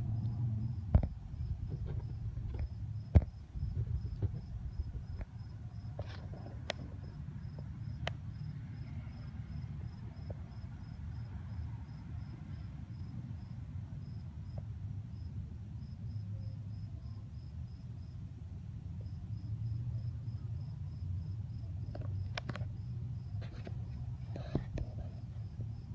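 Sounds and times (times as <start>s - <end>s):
low rumble: 0.0s - 7.1s
cricket chirping: 0.0s - 25.9s.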